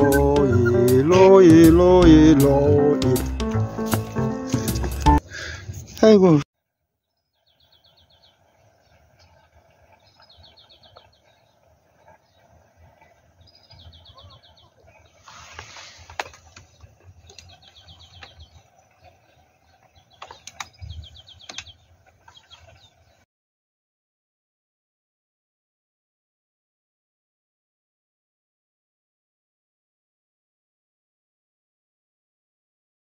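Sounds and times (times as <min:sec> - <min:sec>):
bird trilling: 0:00.0 - 0:02.0
rustle: 0:07.4 - 0:23.2.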